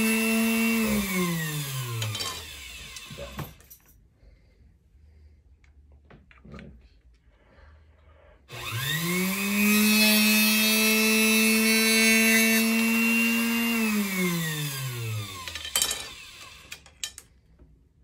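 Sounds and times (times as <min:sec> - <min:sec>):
cut-off saw whining and grinding: 0:00.0 - 0:03.5, 0:08.5 - 0:16.8.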